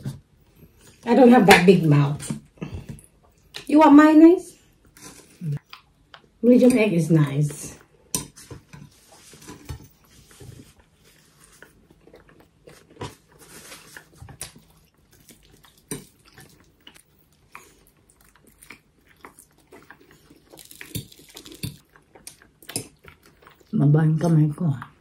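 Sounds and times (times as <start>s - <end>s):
toast crunching while chewed: 4.8s - 6.3s, 8.1s - 23.7s.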